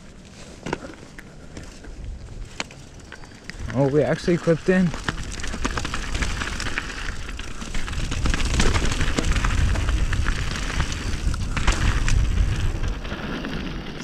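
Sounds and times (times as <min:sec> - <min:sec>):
rocks and bike rattling: 0:00.0 - 0:14.0
tyres crunching over gravel: 0:00.0 - 0:14.0
wind rumble on microphone: 0:04.9 - 0:14.0.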